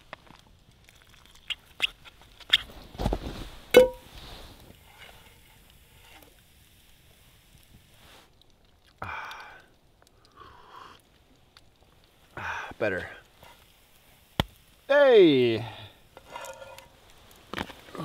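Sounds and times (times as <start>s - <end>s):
person sipping: 8.9s - 11.2s.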